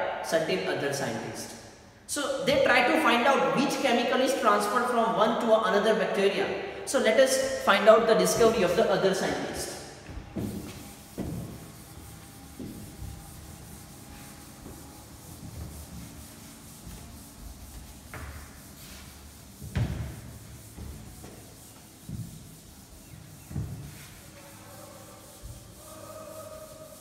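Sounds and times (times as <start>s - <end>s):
duster wiping chalkboard: 6.9s - 27.0s.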